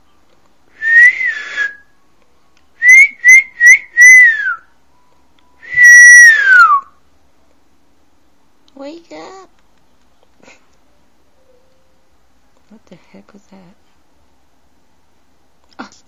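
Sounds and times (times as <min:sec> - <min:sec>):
person whistling: 0:00.8 - 0:01.9, 0:02.8 - 0:04.6, 0:05.6 - 0:06.9.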